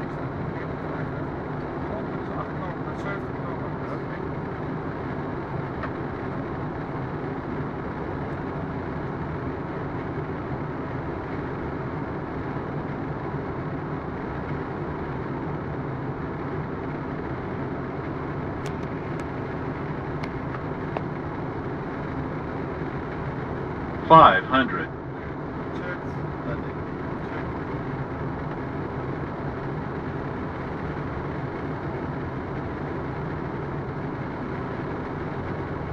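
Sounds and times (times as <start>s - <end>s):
cockpit airflow and engine noise: 0.0s - 35.9s.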